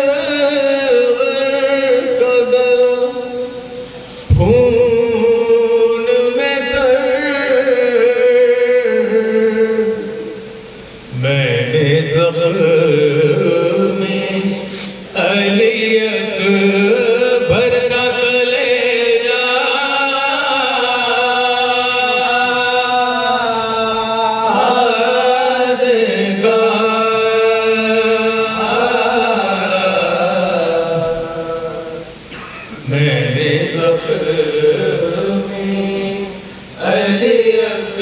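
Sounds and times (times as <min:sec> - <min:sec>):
men chanting over a microphone: 0:00.0 - 0:38.0.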